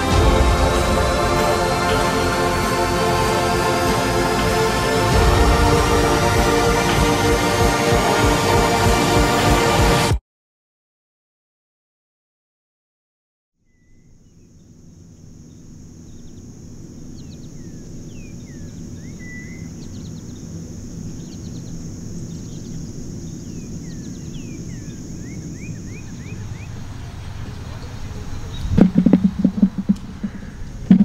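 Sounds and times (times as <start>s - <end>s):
low rumble: 0.0s - 3.2s, 25.5s - 31.0s
birds chirping: 13.7s - 31.0s
high-pitched insect drone: 14.6s - 30.5s.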